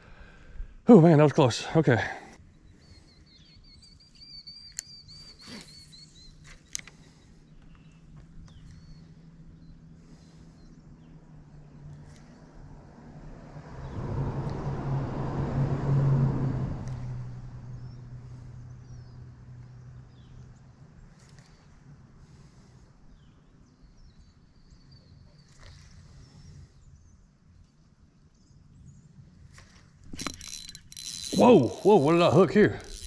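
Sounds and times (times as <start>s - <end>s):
vehicle passing: 11.3s - 20.1s, 30.2s - 33.0s.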